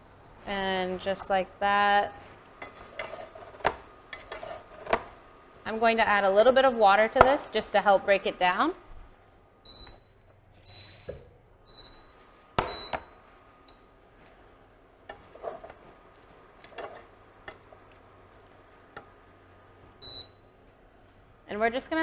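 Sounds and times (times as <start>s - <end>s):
wooden spoon stirring saucepan: 1.0s - 5.1s, 14.2s - 19.2s
kitchen tap running: 10.6s - 12.0s.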